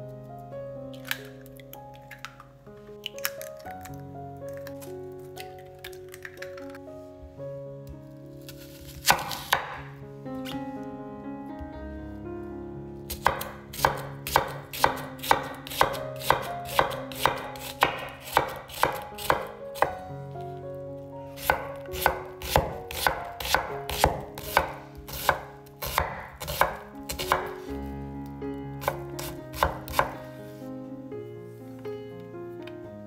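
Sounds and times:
knife chopping on wooden board: 8.9 - 9.8, 13.1 - 20.0, 21.4 - 27.7, 28.8 - 30.2.

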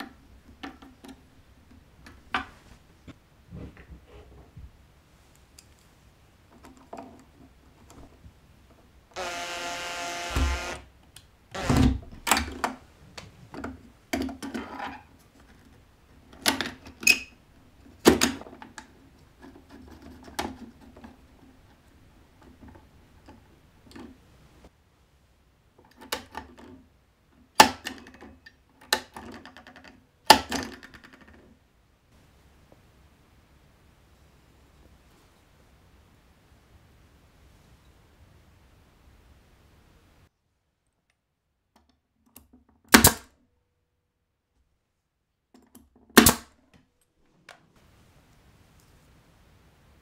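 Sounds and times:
cordless drill whining: 9.1 - 10.9, 11.5 - 12.0.

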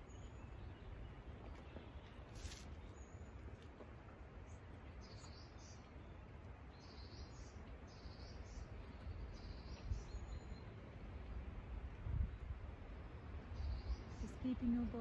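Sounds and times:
small bird chirping: 4.5 - 10.8.

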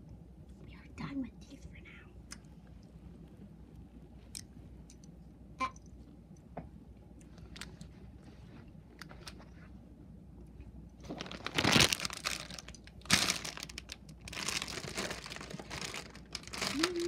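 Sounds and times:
plastic packet crinkling: 11.0 - 17.0.

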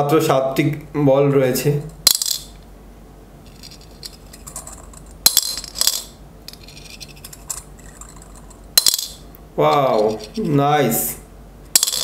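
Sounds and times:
metal balls rattling in plastic: 3.5 - 10.5, 11.8 - 12.0.

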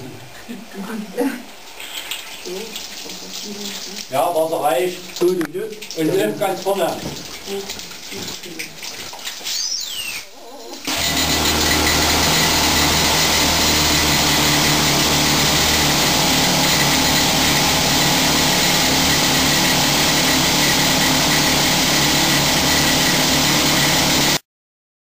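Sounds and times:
pneumatic rock drill drilling: 10.9 - 24.4.

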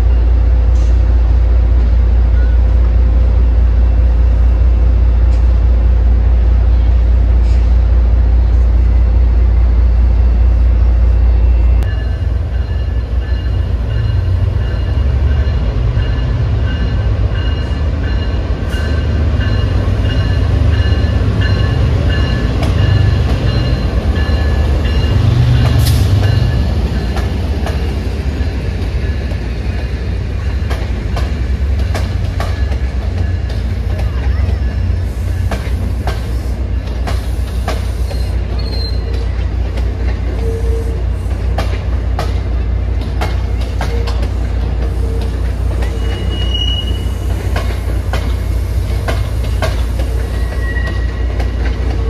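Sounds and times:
train rumbling: 0.0 - 52.0
train wheels clicking: 12.6 - 52.0
high-pitched wheel squeal: 38.1 - 39.2, 45.9 - 47.1, 50.2 - 51.3.

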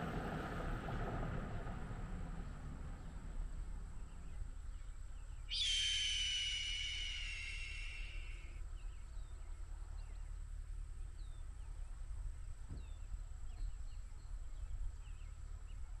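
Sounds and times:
steady low rumble: 0.0 - 16.0
small birds chirping: 3.9 - 12.0
dense high buzz: 5.5 - 8.6.

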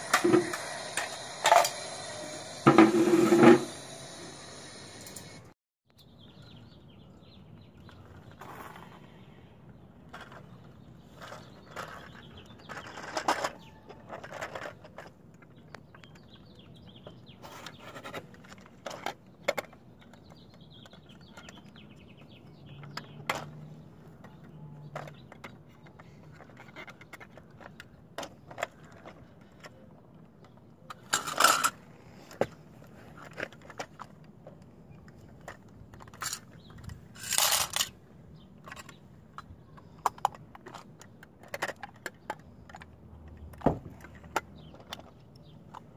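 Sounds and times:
toy parts clicking and scraping: 0.0 - 3.8, 10.0 - 45.9
loud toy rattling bursts: 37.1 - 37.9.

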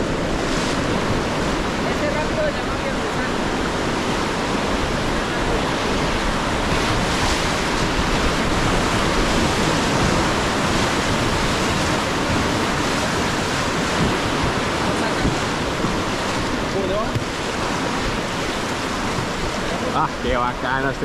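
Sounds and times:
river water rushing: 0.0 - 21.0.

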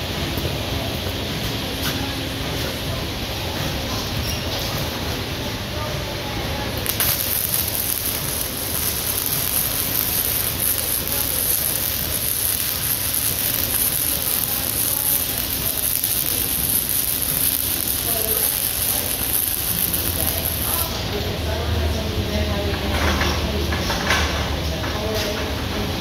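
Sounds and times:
arc welding hiss: 6.6 - 21.1.

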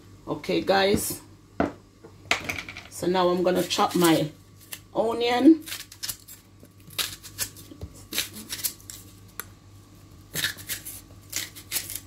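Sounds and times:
knife slicing onion: 3.5 - 9.4, 10.1 - 12.0.

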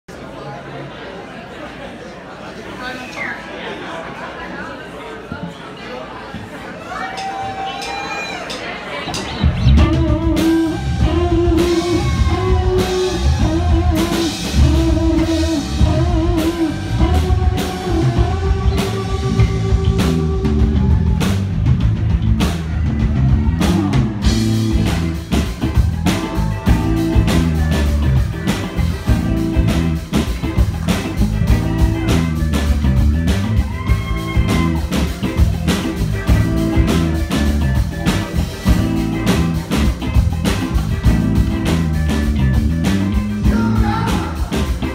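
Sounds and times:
drum kit: 7.2 - 44.9
bass guitar: 9.1 - 44.9
electric guitars: 9.1 - 44.9.

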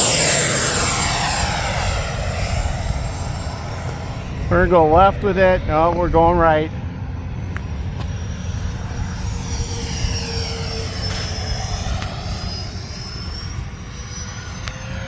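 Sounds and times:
model jet fan whining: 0.0 - 15.0.

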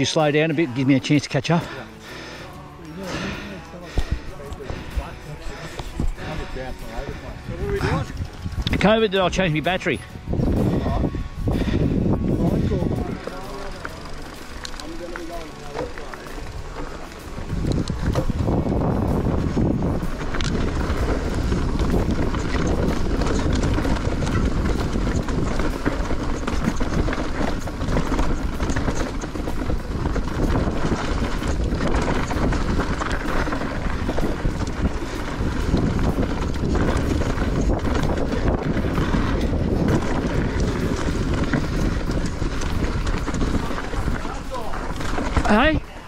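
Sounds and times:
bike rattling: 0.0 - 46.0
tyres rolling on dirt: 0.0 - 46.0
wind buffeting microphone: 3.2 - 15.4, 16.4 - 46.0.

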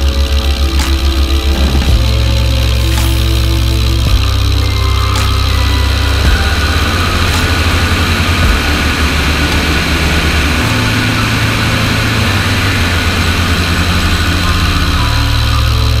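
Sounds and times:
biplane engine and propeller: 0.0 - 16.0.

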